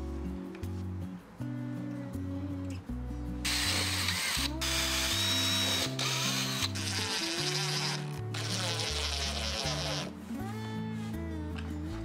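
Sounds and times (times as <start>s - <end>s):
power drill driving screws: 3.5s - 10.1s.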